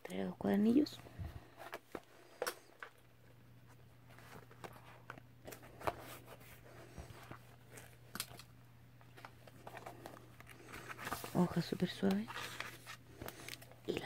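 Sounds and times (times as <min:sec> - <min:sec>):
low steady hum: 0:00.0 - 0:14.0
notebook pages rustling: 0:03.6 - 0:08.4, 0:09.0 - 0:14.0.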